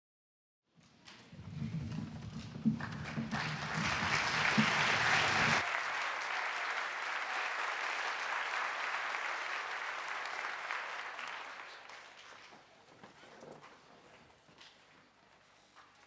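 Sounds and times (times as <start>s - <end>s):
audience applauding: 2.6s - 12.7s.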